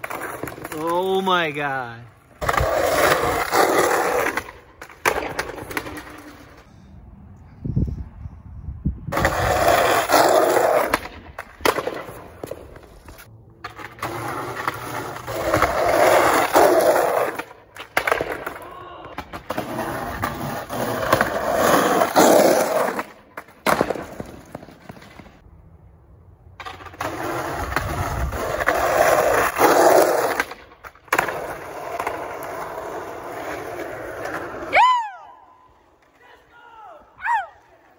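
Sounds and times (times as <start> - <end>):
skateboard wheels rolling on asphalt: 0.0 - 37.9
skateboard clacks popping and landing: 2.4 - 6.6, 9.1 - 12.9, 13.6 - 25.4, 26.5 - 34.5.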